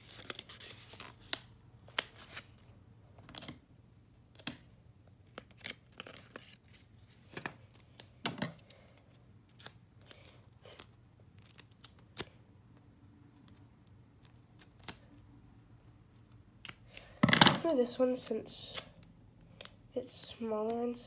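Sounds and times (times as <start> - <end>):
paper rustling and tearing: 0.0 - 2.6.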